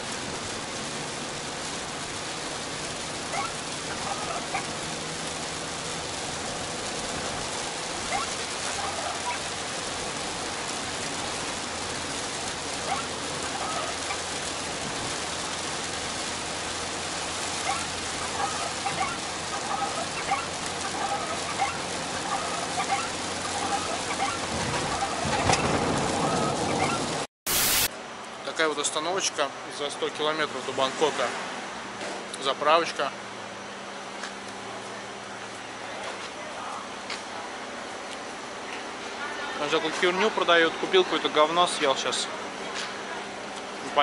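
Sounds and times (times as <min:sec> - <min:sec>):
vehicle low hum: 0:00.0 - 0:27.2
rain on a vehicle: 0:00.0 - 0:27.9, 0:28.5 - 0:44.0.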